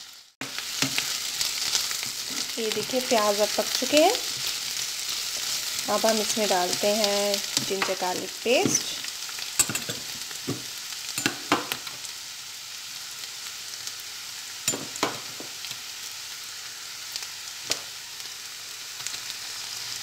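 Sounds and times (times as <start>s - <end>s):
onions sizzling in hot oil: 0.0s - 20.0s
utensils clicking against pan: 6.2s - 9.0s, 9.6s - 10.6s, 11.2s - 12.0s.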